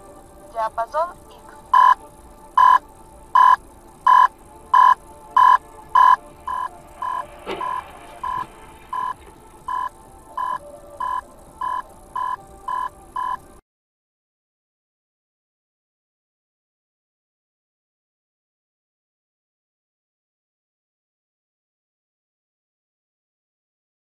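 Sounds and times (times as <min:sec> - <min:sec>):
electronic beeper beeping: 0:01.7 - 0:13.4.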